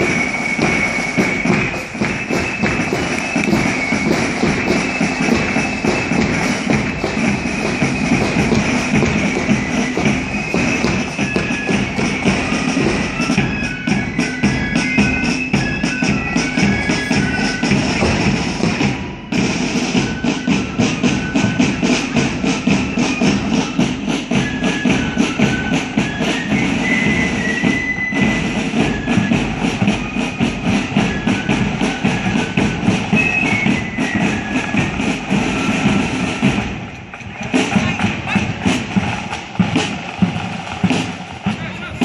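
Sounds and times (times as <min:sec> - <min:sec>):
flutes playing a tune: 0:00.0 - 0:42.0
fast drum beat: 0:37.3 - 0:42.0.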